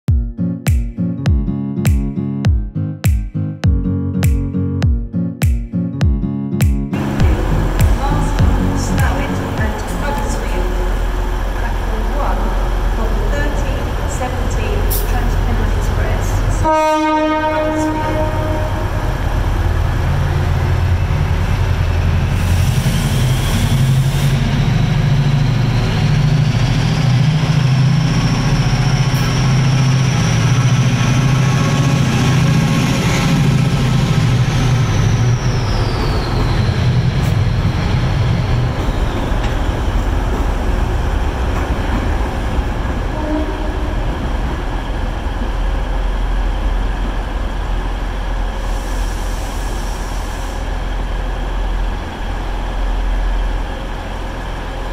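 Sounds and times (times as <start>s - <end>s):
high whine: 6.9s - 16.7s
diesel locomotive engine throb: 6.9s - 54.9s.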